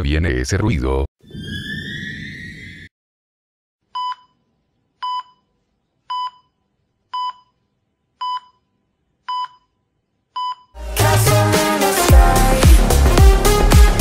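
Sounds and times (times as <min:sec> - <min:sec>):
heart monitor beeping: 0:04.0 - 0:04.4, 0:05.0 - 0:05.5, 0:06.1 - 0:07.6, 0:08.2 - 0:08.7, 0:09.3 - 0:09.8, 0:10.4 - 0:10.7
music: 0:10.8 - 0:14.0.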